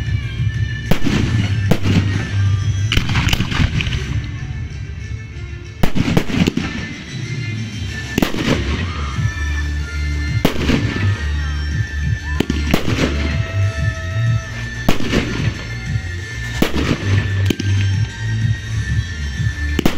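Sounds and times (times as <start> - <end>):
music playing: 0.0 - 19.9
firework shells bursting: 0.9 - 4.4, 5.8 - 9.3, 12.4 - 18.1.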